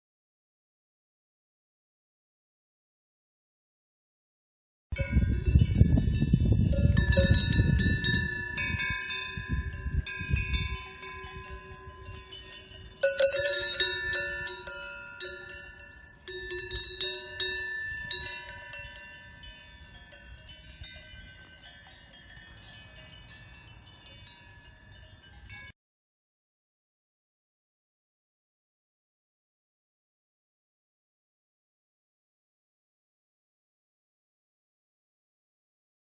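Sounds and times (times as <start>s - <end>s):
cowbells clanking: 5.0s - 25.7s.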